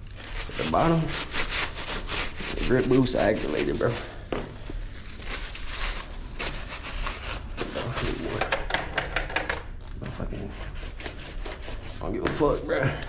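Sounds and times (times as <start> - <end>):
paper crinkling: 0.0 - 8.4
paper towel scrubbing shoe sole: 0.2 - 4.2, 5.3 - 8.4, 10.2 - 12.6.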